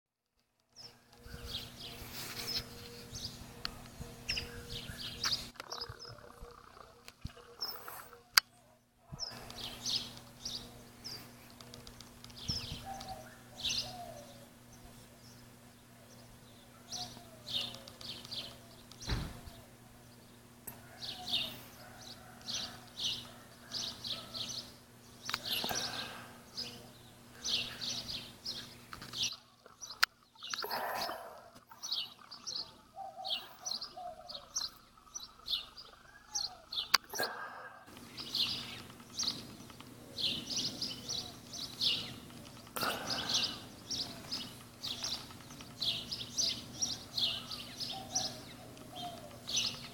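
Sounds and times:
songbirds chirping: 0.3s - 49.9s
sharp clicks: 11.4s - 13.1s.

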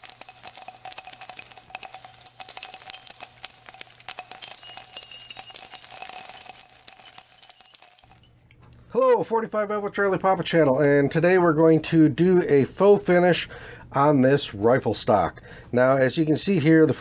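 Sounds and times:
bells jingling rapidly: 0.0s - 8.4s.

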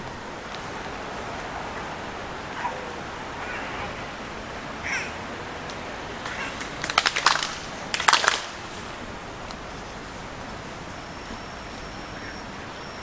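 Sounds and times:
group of people clapping: 5.7s - 8.9s.

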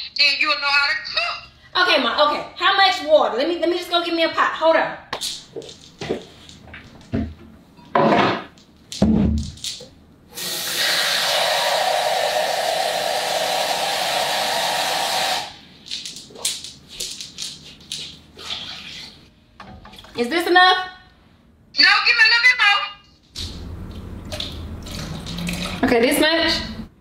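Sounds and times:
faucet running into pot: 10.4s - 15.5s.

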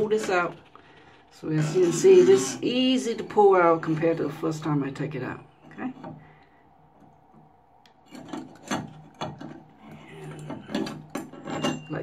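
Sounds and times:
metal rod scraping inside pipe: 0.0s - 3.7s.

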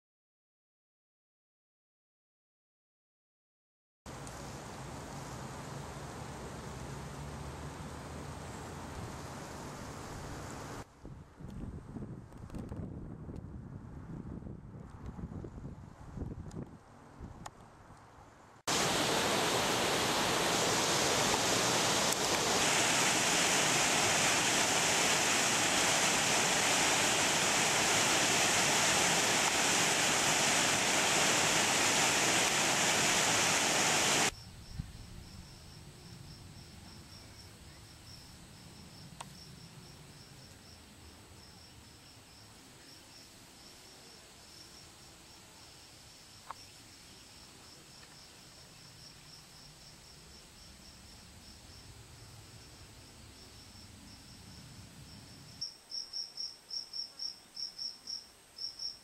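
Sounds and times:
waterfall rushing over rocks: 18.7s - 34.3s
insect pulsing call: 18.8s - 59.0s.

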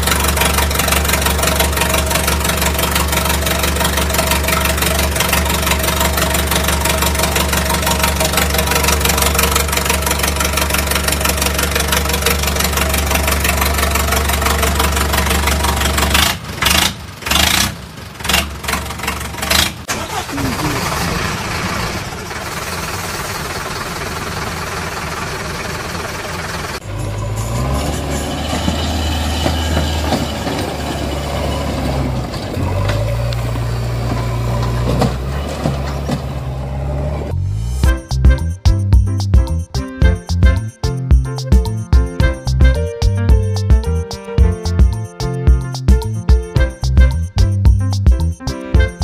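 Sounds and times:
heavy diesel engine running: 0.0s - 39.1s
quieter thinner engine: 0.0s - 39.6s.

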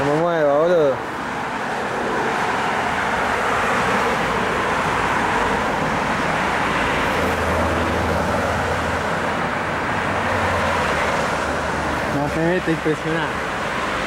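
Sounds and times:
passing cars: 0.0s - 14.0s.

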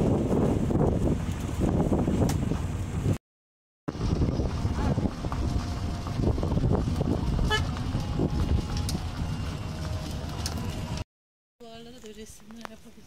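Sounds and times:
vehicle motor rumble: 0.0s - 3.2s, 3.9s - 11.0s
wind on microphone: 0.0s - 3.2s, 3.9s - 11.0s
short horn toot: 7.4s - 7.8s.

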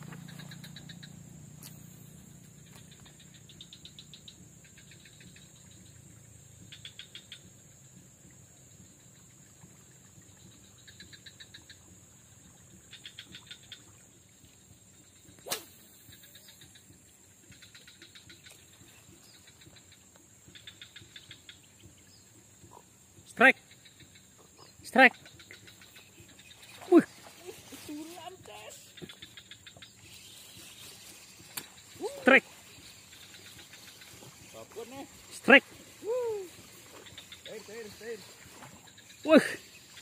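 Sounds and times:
swamp wildlife rattling trills: 0.0s - 40.0s.

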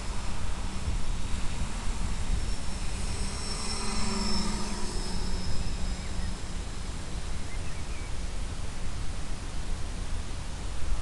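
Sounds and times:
electric motors whining: 0.0s - 7.2s
steady hiss and rumble: 0.0s - 11.0s.

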